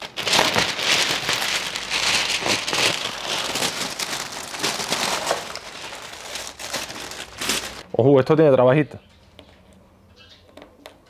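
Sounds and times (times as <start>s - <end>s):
stiff paper crackling: 0.0s - 7.9s.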